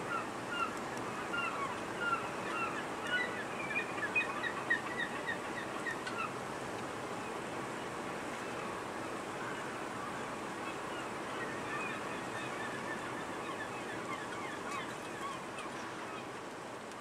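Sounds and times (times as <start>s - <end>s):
wind: 0.0s - 17.0s.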